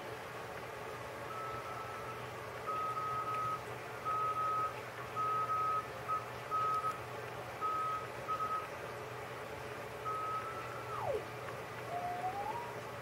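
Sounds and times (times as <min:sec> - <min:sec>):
radio band noise hiss: 0:10.0 - 0:13.0.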